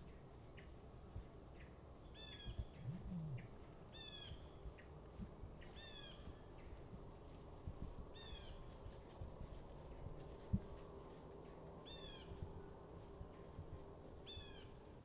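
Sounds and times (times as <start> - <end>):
bird calling: 2.2 - 4.6
soft low thumps: 2.4 - 3.7.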